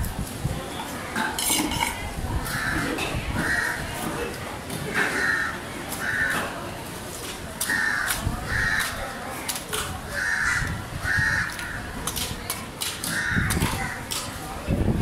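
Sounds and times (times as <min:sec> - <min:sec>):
crows cawing: 0:05.0 - 0:06.5, 0:07.6 - 0:09.0, 0:10.1 - 0:11.9, 0:13.1 - 0:14.1.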